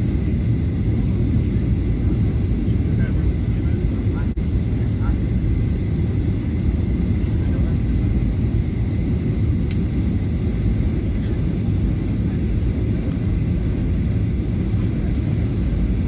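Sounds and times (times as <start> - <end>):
airplane engines rumbling in cabin: 0.0 - 16.0
faint steady whine: 0.0 - 16.0.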